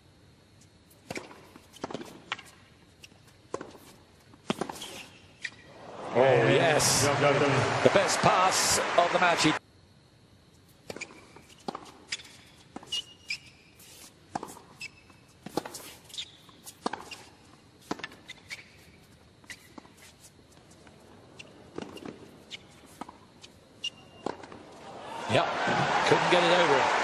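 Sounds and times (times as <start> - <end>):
shoes squeaking on court: 0.9 - 5.7, 10.7 - 24.9.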